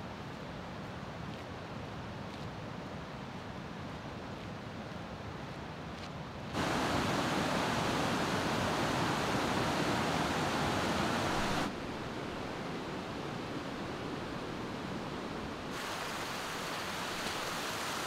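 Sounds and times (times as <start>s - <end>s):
rushing water: 6.5s - 18.0s.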